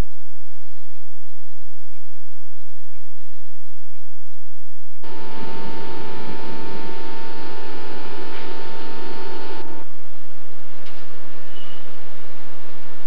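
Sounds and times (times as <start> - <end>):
train equipment humming and whining: 5.0 - 13.0.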